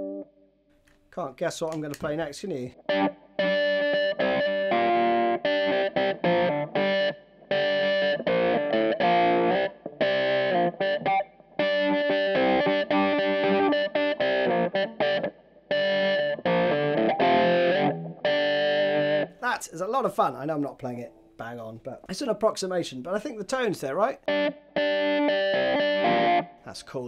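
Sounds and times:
electric guitar riff with wah: 2.8s - 19.8s, 23.6s - 26.6s.

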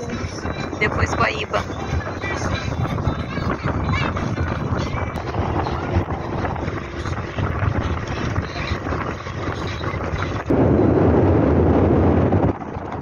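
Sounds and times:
boat engine hum: 0.0s - 13.0s
wind buffeting microphone: 0.0s - 13.0s.

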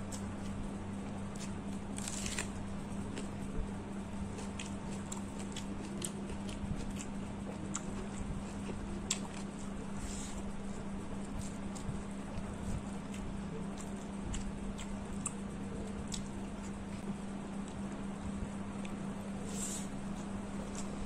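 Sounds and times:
mouth chewing: 4.4s - 9.6s.

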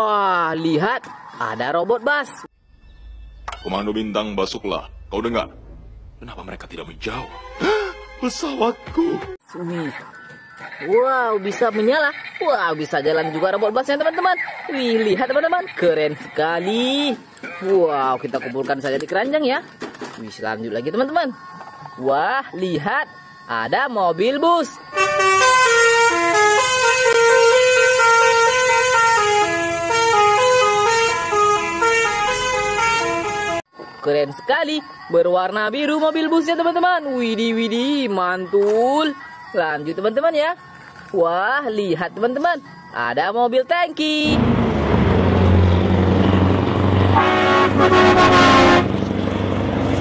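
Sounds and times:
diesel truck engine rumbling: 24.9s - 33.6s, 44.2s - 50.0s
musical air horn tune: 24.9s - 33.6s, 47.0s - 49.0s.

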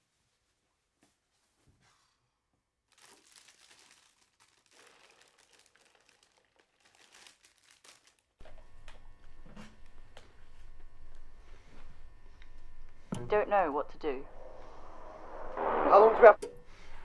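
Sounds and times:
faint crinkling and rustling: 2.9s - 12.1s.

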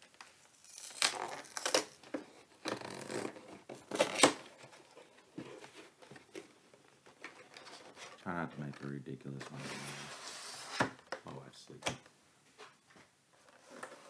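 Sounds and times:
packaging tearing and rustling: 0.4s - 2.0s, 2.8s - 4.5s.

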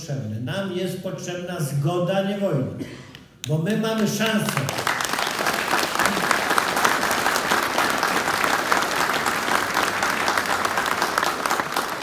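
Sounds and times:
audience clapping: 3.4s - 12.0s.

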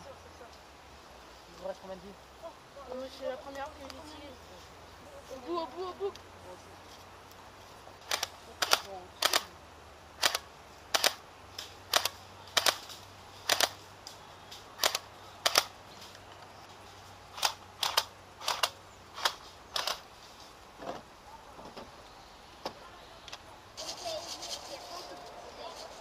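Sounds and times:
airsoft rifle shots: 10.2s - 11.2s, 11.9s - 13.8s, 14.8s - 15.7s.

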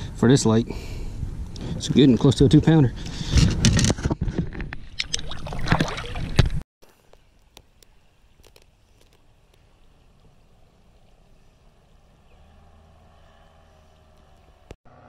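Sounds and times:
water splashing against boat hull: 4.7s - 6.6s.

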